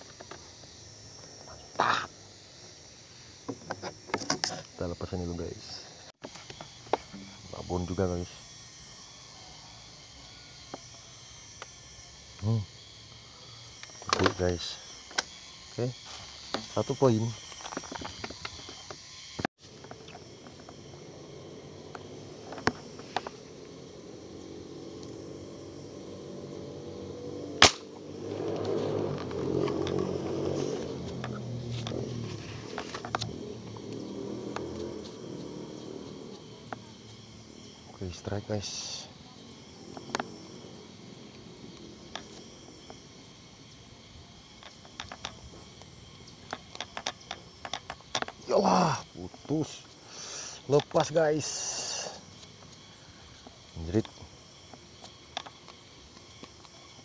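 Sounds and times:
high-pitched insect hum: 0:00.0 - 0:57.0
fishing reel clicks: 0:06.4 - 0:19.4
speargun shot: 0:27.6 - 0:27.9.

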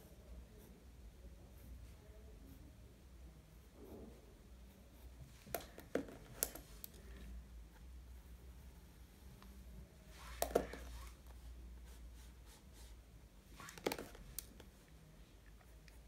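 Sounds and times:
pencil scratching on paper: 0:00.0 - 0:02.8, 0:03.4 - 0:05.4, 0:10.1 - 0:14.4
pens knocking on surface: 0:05.5 - 0:07.0, 0:10.4 - 0:10.9, 0:13.7 - 0:14.7.

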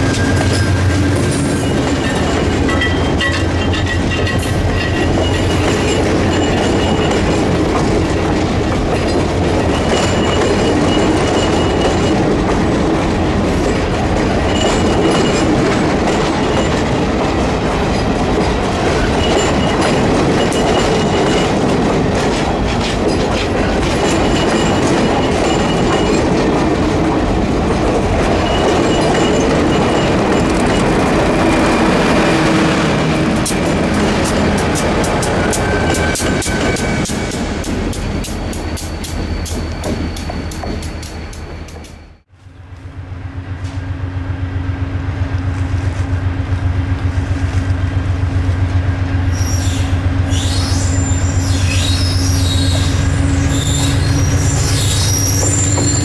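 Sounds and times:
high-pitched wheel squeals: 0:00.0 - 0:07.2, 0:49.3 - 0:56.0
clickety-clack over rail joints: 0:00.0 - 0:42.2, 0:50.6 - 0:56.0
train wheels rumbling on rail: 0:00.0 - 0:56.0.

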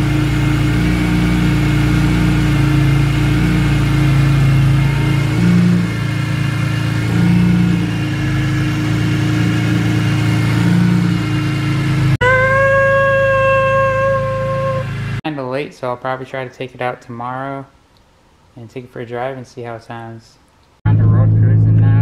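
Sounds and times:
car engine idling and revving: 0:00.0 - 0:15.2, 0:20.9 - 0:22.0
steady high tone: 0:12.2 - 0:15.2.

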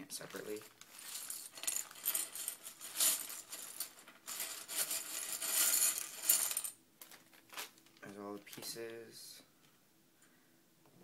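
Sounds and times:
plastic pieces shifting: 0:00.2 - 0:08.7
plastic bag crinkling: 0:00.2 - 0:08.8.

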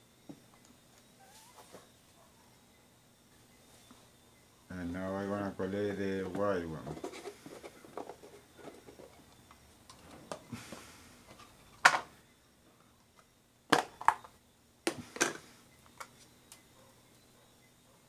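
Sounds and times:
plastic containers clicking and knocking: 0:06.2 - 0:09.3, 0:11.3 - 0:12.1, 0:13.7 - 0:15.4.

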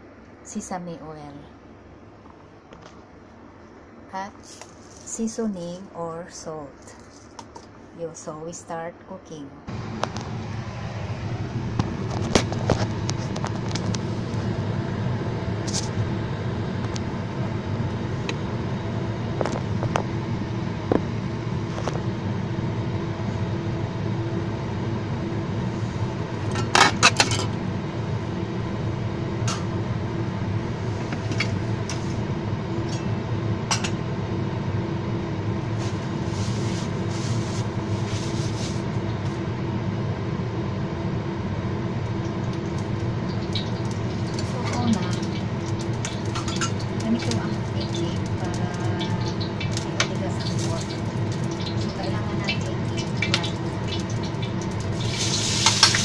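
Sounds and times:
gas stove burner humming: 0:00.0 - 0:56.0
wok metal clicks and clatter: 0:43.5 - 0:49.1.

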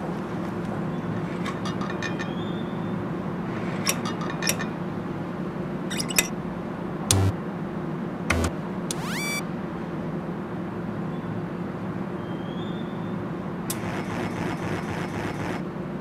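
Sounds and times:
sharp clicks and clinks: 0:05.9 - 0:06.3
steady low hum: 0:07.1 - 0:07.4, 0:08.3 - 0:09.4.

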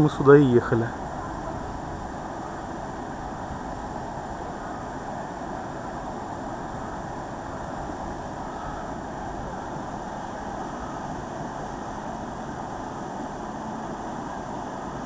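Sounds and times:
waterfall rushing: 0:00.0 - 0:15.0.

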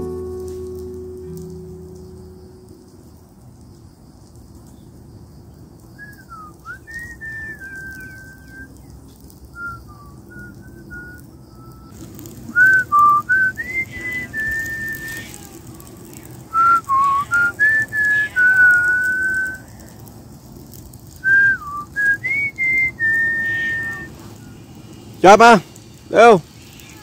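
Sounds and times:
person whistling a tune: 0:06.0 - 0:08.8, 0:09.6 - 0:15.3, 0:16.5 - 0:19.6, 0:21.2 - 0:24.6.

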